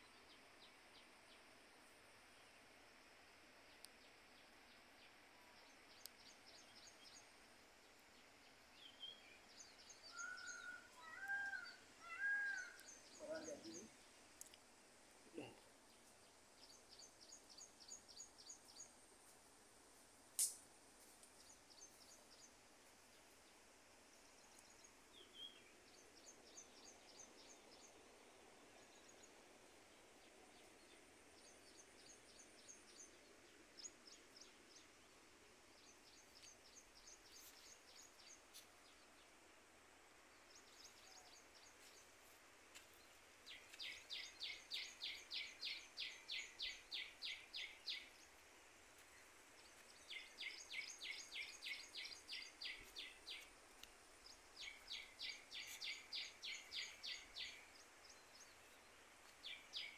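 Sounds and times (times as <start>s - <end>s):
sharp click: 20.4s - 20.6s.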